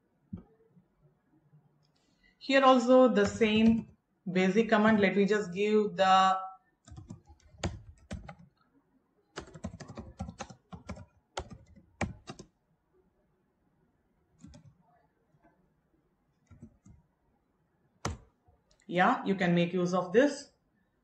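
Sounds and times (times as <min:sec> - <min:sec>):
keyboard typing: 0:03.1 - 0:04.0, 0:06.8 - 0:08.6, 0:09.4 - 0:12.6, 0:14.4 - 0:14.8, 0:16.4 - 0:17.0, 0:18.0 - 0:18.4.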